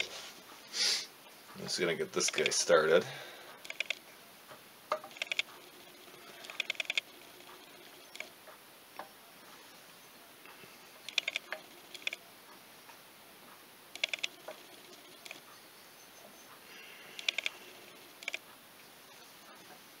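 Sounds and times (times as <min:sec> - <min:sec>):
gear clicking metallic ticks: 0:01.5 - 0:02.9, 0:03.6 - 0:04.0, 0:05.0 - 0:05.5, 0:06.3 - 0:08.6, 0:10.4 - 0:13.0, 0:14.0 - 0:15.6, 0:17.2 - 0:17.6, 0:18.2 - 0:18.5.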